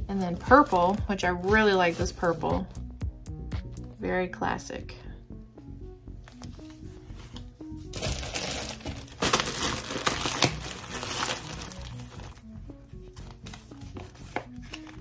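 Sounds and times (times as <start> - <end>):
light background music: 0.0 - 15.0
plastic packaging crinkling: 7.9 - 12.4.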